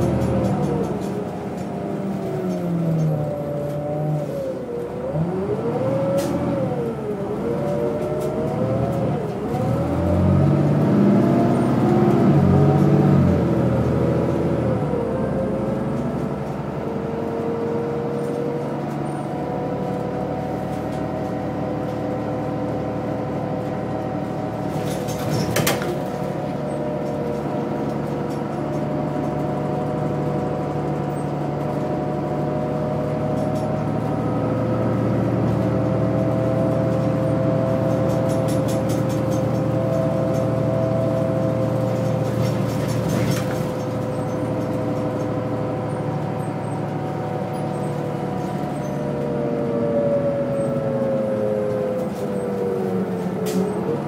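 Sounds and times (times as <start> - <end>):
bus engine hum: 0.0 - 54.0.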